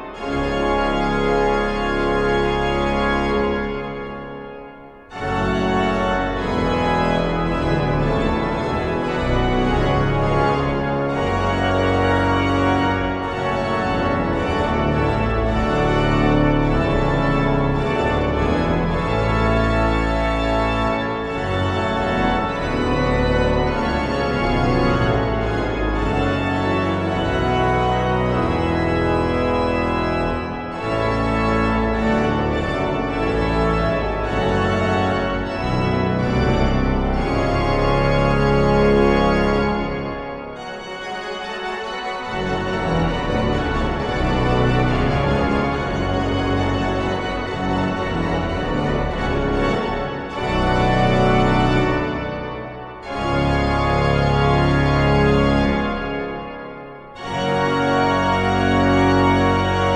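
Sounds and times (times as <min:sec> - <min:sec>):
church pipe organ playing: 0:00.0 - 0:59.9.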